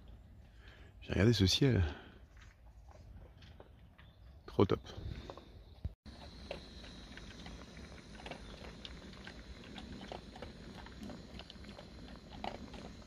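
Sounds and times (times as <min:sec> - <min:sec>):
small crackles: 0:06.1 - 0:13.0.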